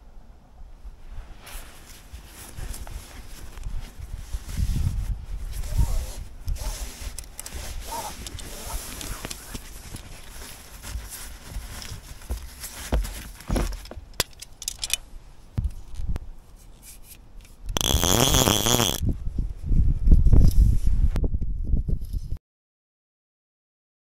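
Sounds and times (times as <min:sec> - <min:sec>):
cloth rustling: 0:01.2 - 0:14.0
buzzing whir: 0:17.8 - 0:19.0.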